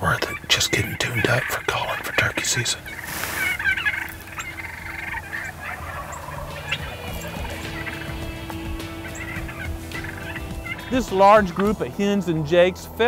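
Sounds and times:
turkeys calling: 0:00.0 - 0:12.9.

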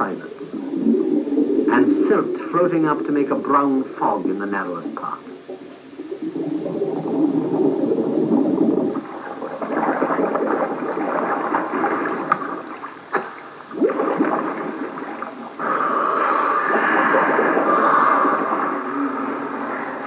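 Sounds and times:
air bubbles gurgling in water: 0:00.0 - 0:20.0
sharp pops: 0:13.1 - 0:13.9.

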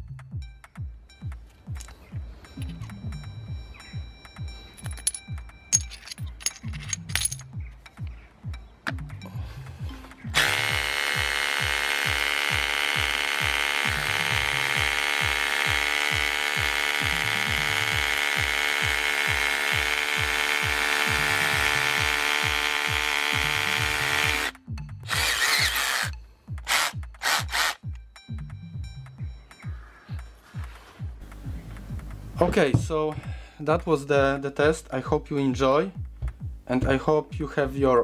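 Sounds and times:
background music with steady beat: 0:00.0 - 0:38.0
hammer drill boring into concrete: 0:10.3 - 0:27.8
short harsh drill bursts: 0:10.4 - 0:24.5, 0:25.1 - 0:26.1, 0:26.7 - 0:27.8.

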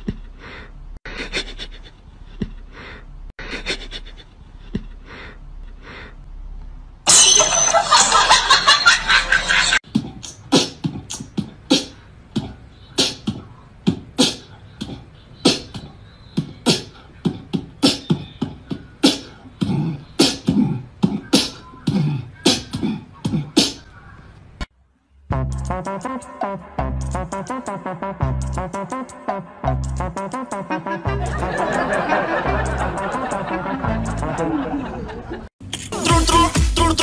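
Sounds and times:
beatbox rhythm: 0:00.0 - 0:00.5, 0:09.8 - 0:23.9, 0:25.3 - 0:34.6, 0:35.7 - 0:37.0.

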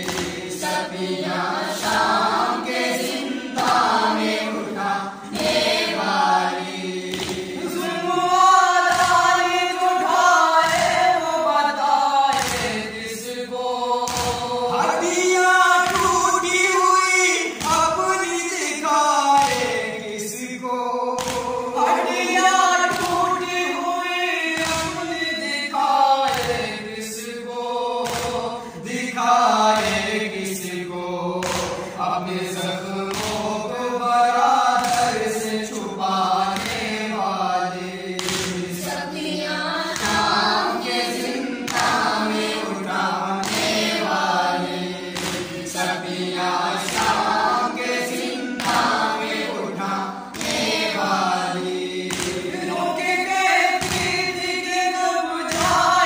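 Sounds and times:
men chanting in unison: 0:00.0 - 0:56.0.

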